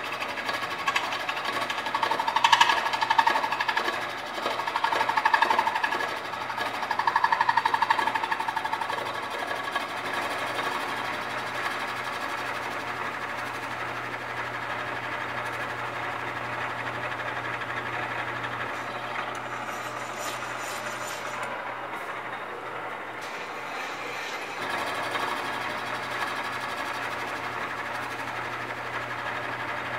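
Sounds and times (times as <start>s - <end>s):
milling machine cutting metal: 17.6s - 29.4s.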